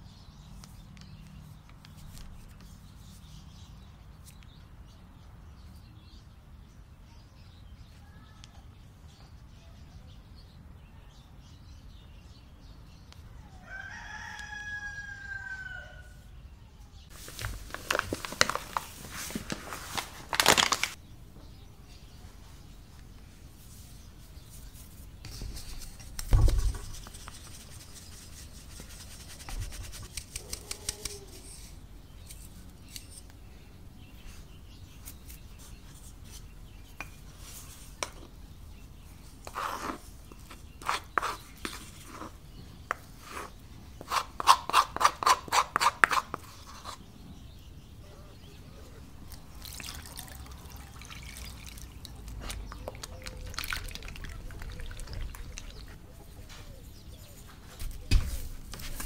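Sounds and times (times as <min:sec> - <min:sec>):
hands mixing wet dough: 0:17.1 - 0:21.6, 0:22.4 - 0:33.0, 0:34.1 - 0:47.1, 0:49.2 - 0:59.0
dull thump: 0:26.3 - 0:26.9.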